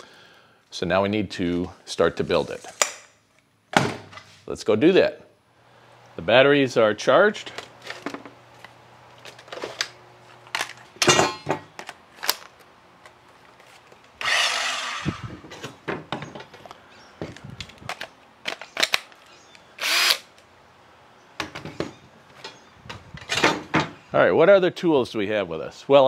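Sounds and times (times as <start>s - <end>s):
battery packs clicking into tools: 11.7s - 14.4s, 16.6s - 20.4s
circular saw running: 14.2s - 15.2s
cordless drill whirring: 14.2s - 15.3s, 19.8s - 20.3s.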